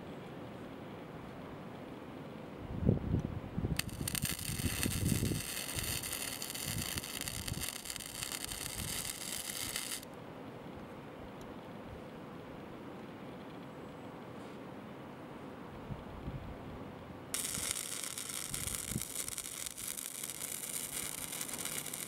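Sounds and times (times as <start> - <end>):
welding arc crackling hiss: 3.8 - 10.1, 17.3 - 22.0.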